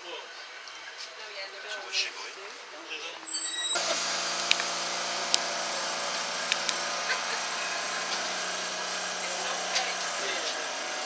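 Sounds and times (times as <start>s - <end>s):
wheel on rail hiss: 3.4s - 11.0s
tram motors humming: 3.7s - 11.0s
sharp clicks: 4.3s - 5.5s, 6.4s - 6.8s.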